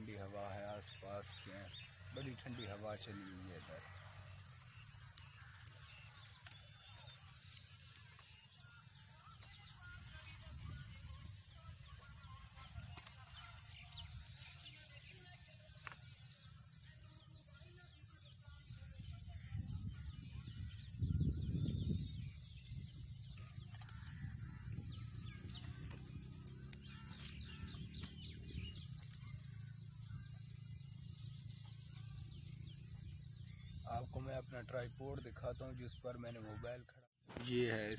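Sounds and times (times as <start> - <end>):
faint bird calls: 0.0 - 34.0
wind buffeting microphone: 19.1 - 26.5.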